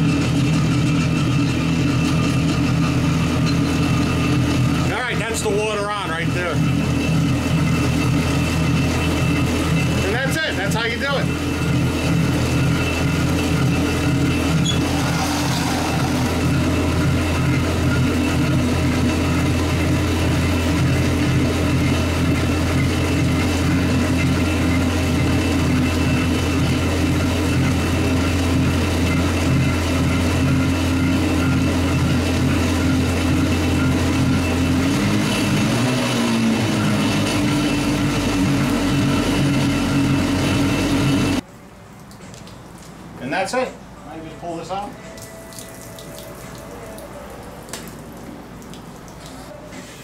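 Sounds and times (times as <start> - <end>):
two-stroke engine idling: 0.0 - 41.4
water flushing: 13.7 - 27.9
trickling water: 41.7 - 43.2, 45.1 - 49.6
water spraying and splashing: 45.2 - 50.0.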